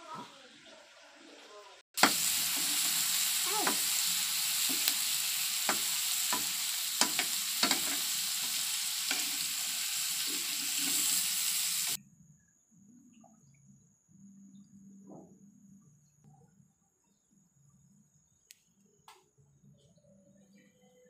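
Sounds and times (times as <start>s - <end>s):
vegetables sizzling in oil: 0.5s - 12.0s.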